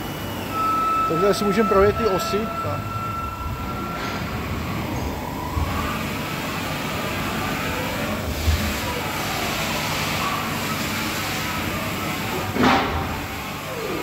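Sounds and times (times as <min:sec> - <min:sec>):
machine table whirring: 0:00.0 - 0:14.0
machine thump: 0:12.6 - 0:13.2.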